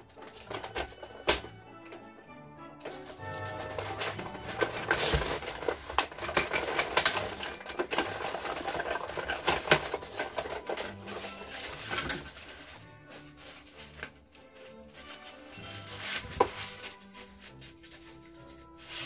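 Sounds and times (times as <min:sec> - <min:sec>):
hand-cranked die-cutting machine clicking: 0:00.0 - 0:02.2, 0:02.8 - 0:13.2.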